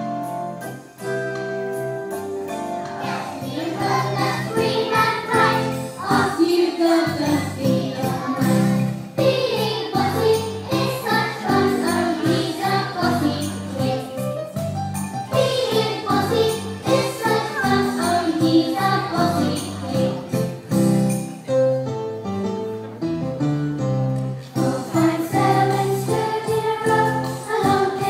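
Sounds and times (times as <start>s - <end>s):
musical accompaniment: 0.0s - 28.0s
children singing: 2.9s - 14.2s, 15.3s - 20.4s, 24.6s - 28.0s.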